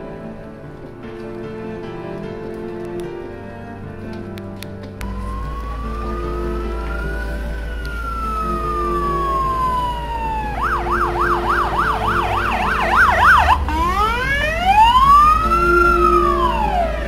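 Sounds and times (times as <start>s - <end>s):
fire engine siren wailing and yelping: 5.0s - 17.0s.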